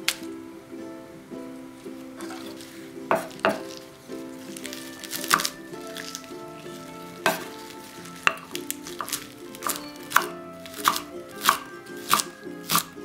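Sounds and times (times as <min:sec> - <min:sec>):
light background music: 0:00.0 - 0:13.0
knife chopping on wooden board: 0:03.1 - 0:03.8, 0:04.6 - 0:06.1, 0:07.2 - 0:12.9.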